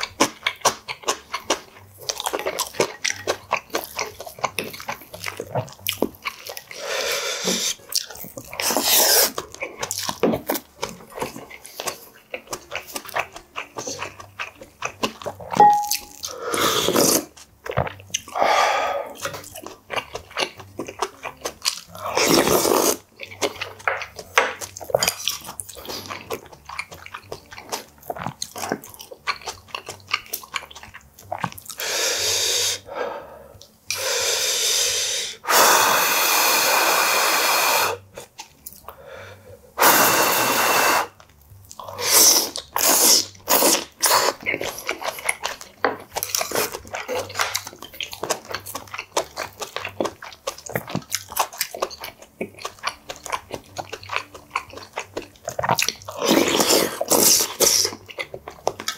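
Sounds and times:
wet chewing and smacking: 0.0s - 32.8s, 36.4s - 39.0s, 40.6s - 58.9s
loud slurps of soup: 8.6s - 9.4s, 33.9s - 38.0s, 39.8s - 41.2s, 42.0s - 44.4s.

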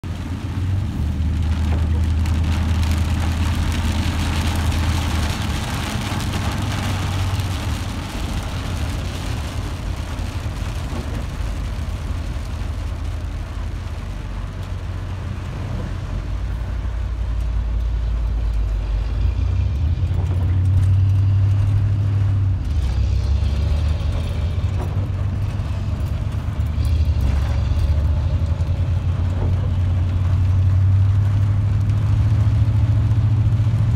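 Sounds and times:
car engine and road drone: 0.0s - 33.9s.

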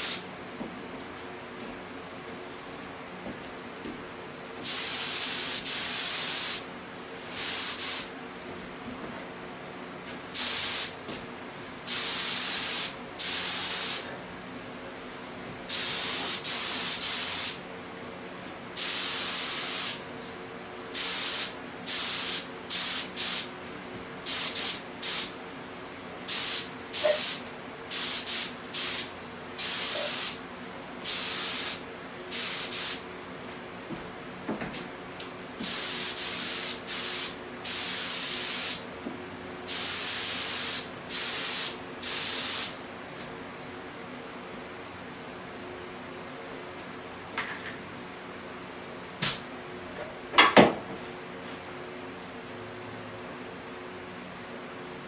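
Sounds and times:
spray gun hissing: 0.0s - 0.2s, 4.6s - 8.4s, 9.6s - 11.0s, 11.7s - 14.1s, 15.2s - 17.6s, 18.8s - 20.0s, 20.9s - 23.5s, 24.2s - 25.3s, 26.3s - 30.4s, 31.0s - 33.0s, 35.6s - 38.8s, 39.7s - 42.8s.

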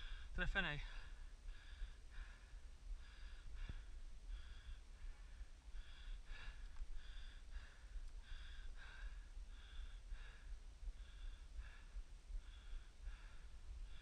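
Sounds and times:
fast heavy breathing: 0.0s - 14.0s.

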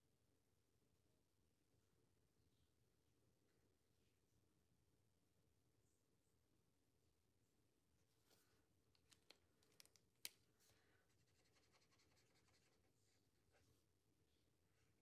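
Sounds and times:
marker scratching on paper: 11.1s - 13.2s.

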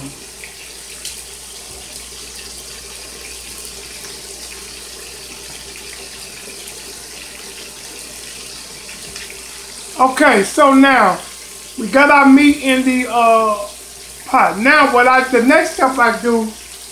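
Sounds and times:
meat searing in hot oil: 0.0s - 16.9s.

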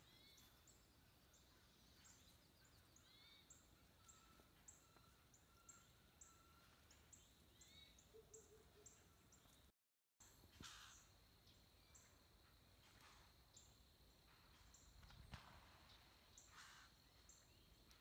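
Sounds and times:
birds chipping: 0.0s - 9.7s.

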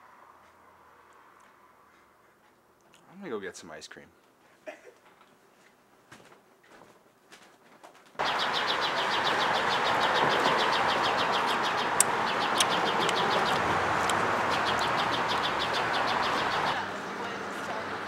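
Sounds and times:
steady outdoor hiss: 0.0s - 6.0s, 8.2s - 18.0s
birds chirping: 8.2s - 18.0s
sharp clicks: 11.4s - 15.8s.

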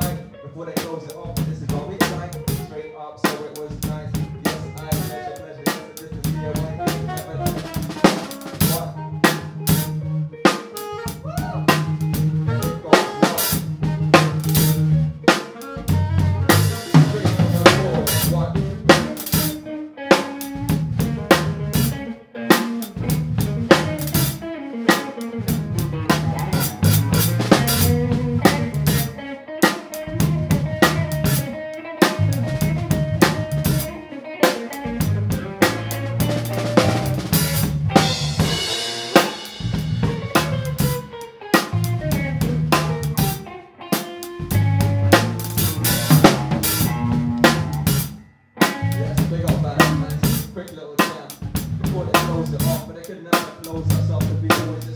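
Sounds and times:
bass notes: 0.0s - 0.4s, 1.2s - 2.9s, 3.6s - 5.4s, 6.0s - 43.6s, 44.2s - 50.7s, 51.4s - 53.0s, 53.7s - 54.9s
funk band playing: 0.0s - 54.9s
saxophone: 4.3s - 48.8s.

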